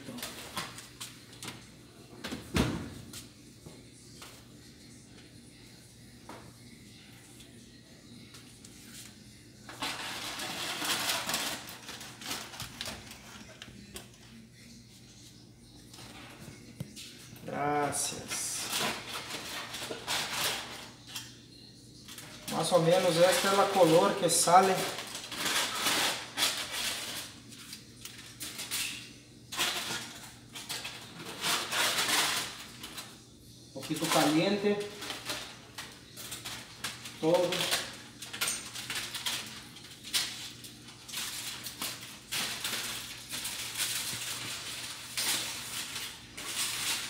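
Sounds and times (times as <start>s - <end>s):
aluminium foil crinkling: 9.6s - 14.2s, 17.4s - 21.3s, 22.0s - 47.0s
scattered crackles and clicks: 35.0s - 47.0s.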